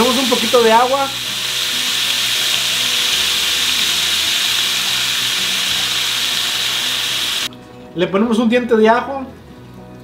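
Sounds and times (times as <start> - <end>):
water pouring into pan: 0.0 - 7.5
pork sizzling in a skillet: 0.0 - 7.6.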